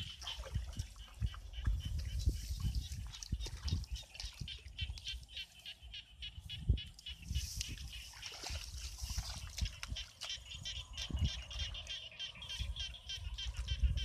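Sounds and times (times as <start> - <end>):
bare feet squelching in mud: 0.0 - 5.6, 7.0 - 10.9.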